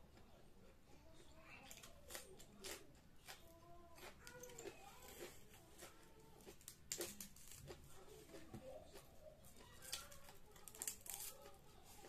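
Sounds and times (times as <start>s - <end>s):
chewing and mouth clicks: 1.6s - 11.3s
food tearing: 1.6s - 12.0s.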